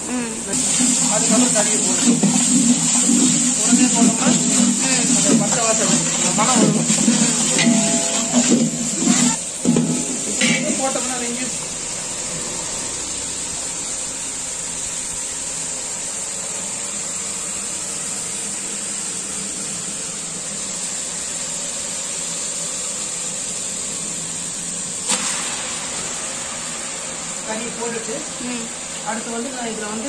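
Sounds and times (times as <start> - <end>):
burner hissing: 0.0 - 30.0
meat dropped sizzling into pot: 25.0 - 26.6.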